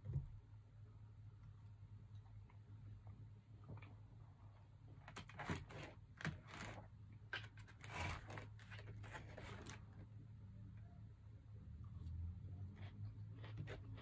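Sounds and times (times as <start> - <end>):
plastic fork scraping foam container: 7.7 - 9.8.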